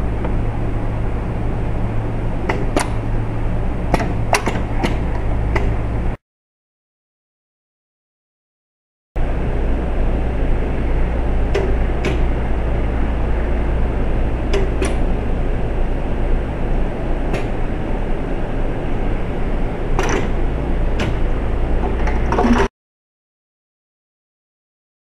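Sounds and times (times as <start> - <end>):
machine hum: 0.0 - 6.2, 9.2 - 22.7
sharp mechanical clicks and clunks: 2.5 - 3.0, 3.9 - 5.8, 11.5 - 12.3, 14.5 - 15.1, 20.0 - 20.4, 21.0 - 22.7.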